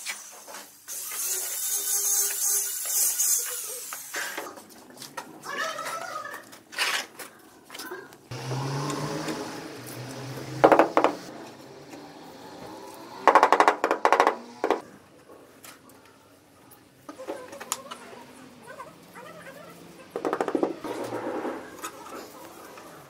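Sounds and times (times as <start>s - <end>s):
tile scraping and clattering: 4.2s - 7.9s, 20.5s - 22.4s.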